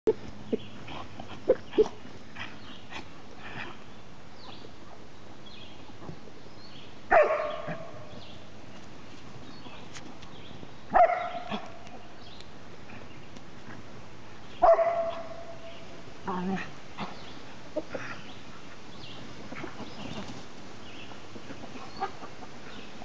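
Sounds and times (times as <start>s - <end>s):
dog barking: 7.1s - 8.0s, 10.9s - 11.6s, 14.6s - 15.6s.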